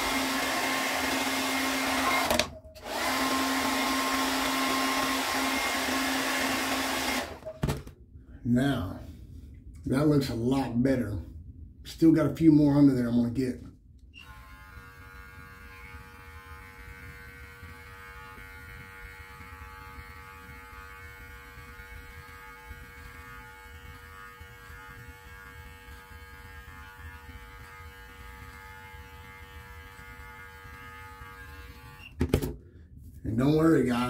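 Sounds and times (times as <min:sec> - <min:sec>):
electric clippers humming: 0:00.0 - 0:07.5, 0:14.2 - 0:32.2.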